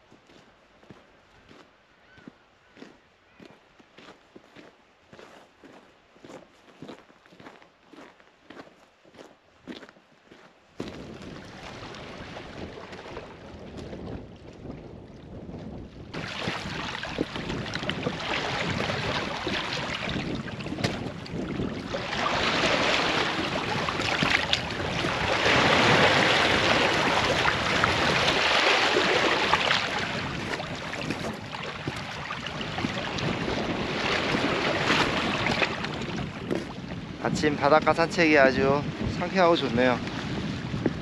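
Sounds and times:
wind buffeting microphone: 10.8 - 41.0
small waves washing over rocks: 16.1 - 37.6.

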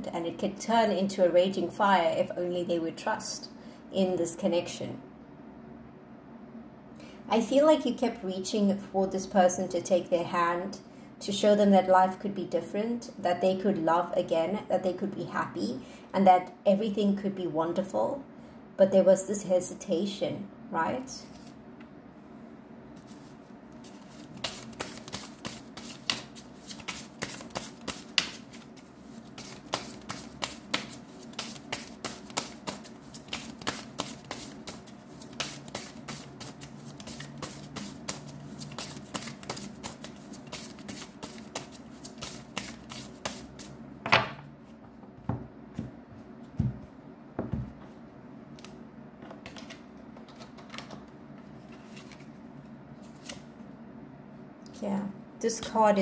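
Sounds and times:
cards being shuffled: 21.2 - 21.6, 23.0 - 43.7, 48.6 - 51.0, 51.6 - 52.4, 53.0 - 53.5.

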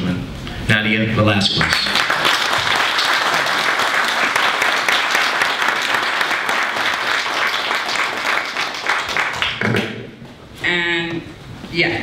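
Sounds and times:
audience applauding: 1.5 - 10.0.

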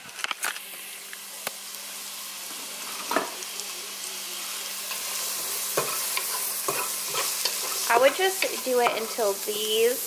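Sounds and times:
onions and garlic sizzling: 0.0 - 10.0.

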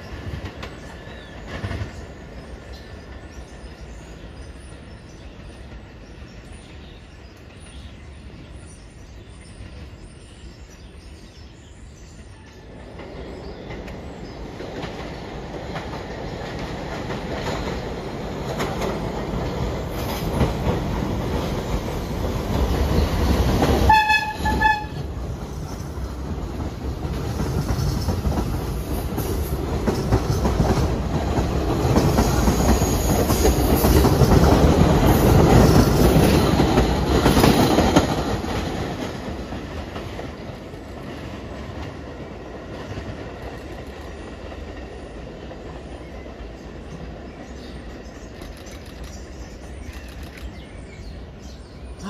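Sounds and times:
subway train passing: 0.0 - 52.0
train horn blasts: 23.9 - 25.1.

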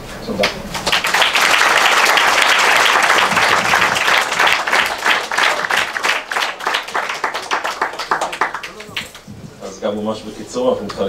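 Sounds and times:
audience applauding: 0.7 - 9.3.

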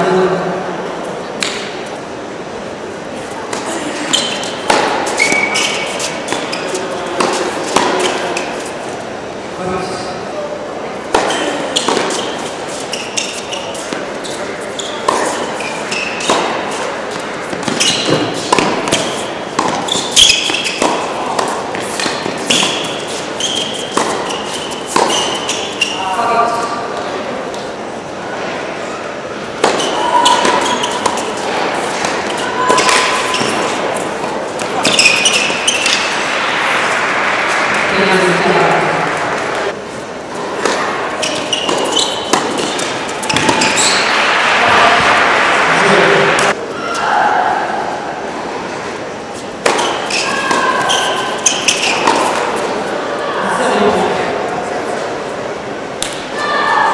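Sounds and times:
shoes squeaking on court: 3.4 - 8.8, 11.1 - 26.7, 29.6 - 36.2, 40.4 - 44.2, 49.4 - 52.8
tennis ball bounces: 4.2 - 8.5, 11.1 - 12.5, 15.0 - 25.9, 29.6 - 36.4, 40.6 - 44.3, 49.6 - 52.6
tennis racket strikes: 4.2 - 8.5, 11.1 - 12.5, 15.0 - 25.8, 29.6 - 36.4, 40.6 - 44.2, 49.6 - 52.6
applause: 36.3 - 39.2, 44.0 - 46.4.

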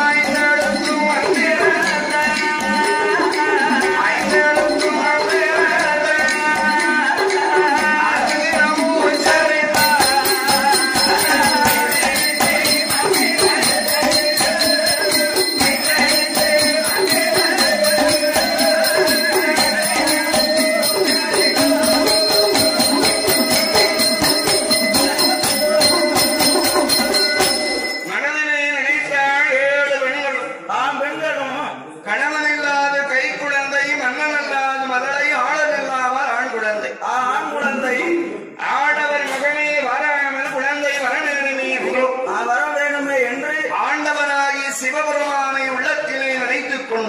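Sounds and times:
fast percussion strokes: 0.0 - 28.2
jingling bells: 0.0 - 28.3.

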